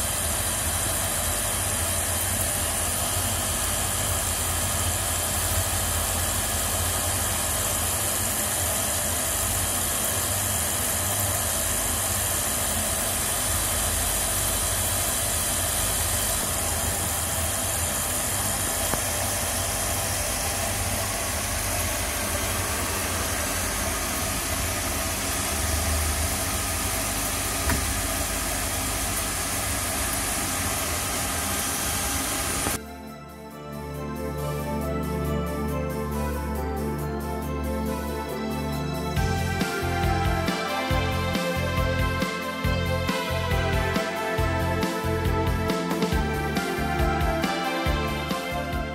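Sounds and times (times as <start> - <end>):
machine hum with high whine: 0.0 - 48.9.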